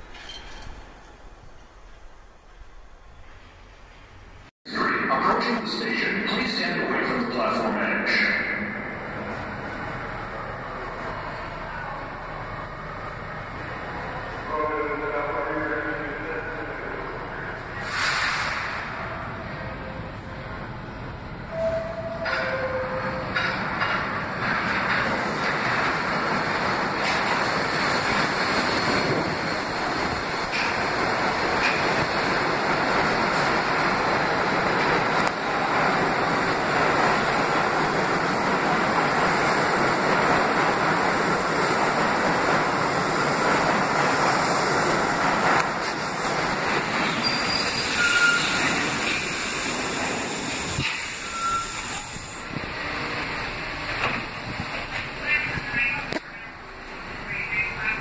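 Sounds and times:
train wheels rumbling on rails: 0.0s - 4.5s, 5.3s - 58.0s
high brake squeals: 47.0s - 52.6s.

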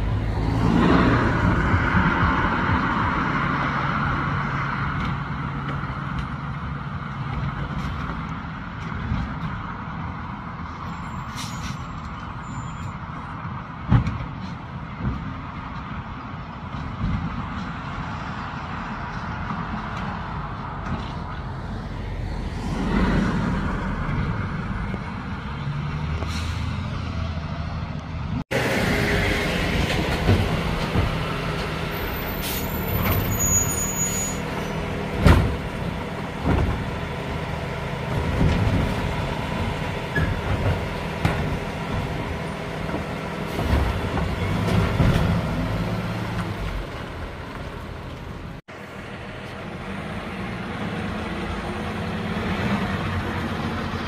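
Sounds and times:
air brake hisses: 11.2s - 11.9s, 26.2s - 26.8s
diesel truck engine running: 23.2s - 33.1s, 34.4s - 54.0s
cart banging against truck: 35.1s - 37.1s, 37.9s - 47.2s.

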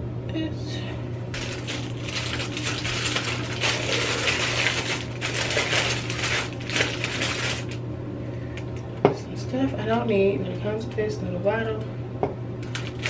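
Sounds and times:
plastic bag crinkling: 1.4s - 7.8s, 12.6s - 13.0s.

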